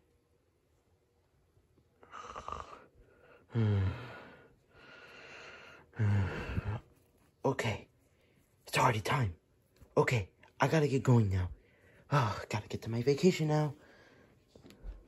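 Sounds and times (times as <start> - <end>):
person breathy sleeping noises: 2.0 - 6.9
person groaning: 3.5 - 4.2, 6.0 - 6.8.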